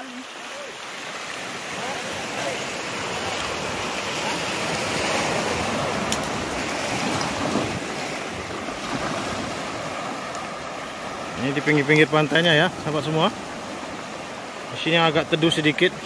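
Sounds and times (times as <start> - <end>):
small waves breaking on beach: 0.0 - 16.0.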